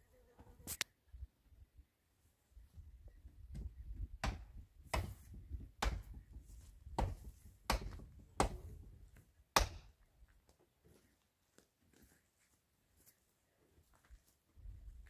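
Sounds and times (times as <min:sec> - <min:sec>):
footsteps on stony ground: 0:06.2 - 0:15.0.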